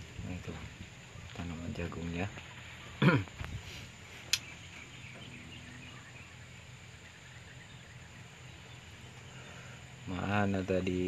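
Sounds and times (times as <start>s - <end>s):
faint bird calls: 0.0s - 11.0s
sharp click: 4.3s - 4.5s.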